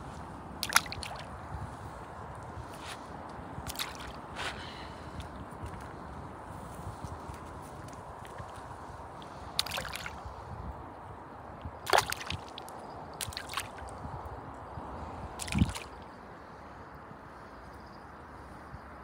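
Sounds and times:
shallow water splashing: 0.6s - 1.3s, 3.6s - 4.2s, 8.2s - 10.2s, 11.8s - 13.9s, 15.4s - 16.0s.

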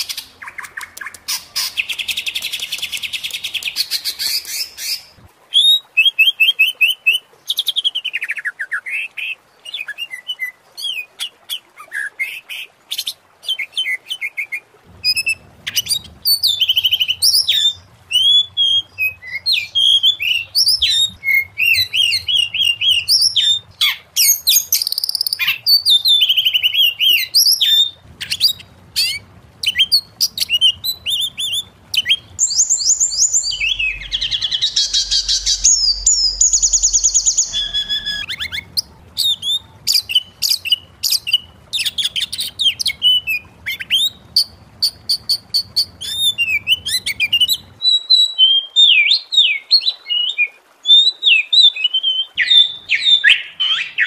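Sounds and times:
bird singing varied song: 15.0s - 54.0s.

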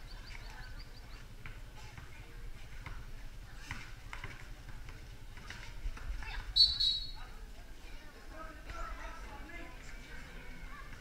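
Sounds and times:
basketball bouncing on concrete: 1.4s - 6.3s
small bird chirping: 6.6s - 7.2s.

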